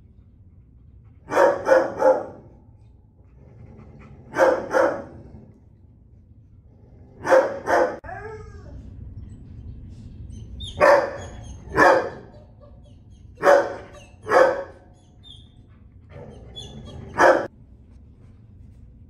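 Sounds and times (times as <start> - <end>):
low steady hum: 0.0 - 19.0
dog barking: 1.3 - 2.5, 4.3 - 5.3, 7.2 - 8.0, 10.7 - 12.8, 13.4 - 15.0, 16.2 - 17.5.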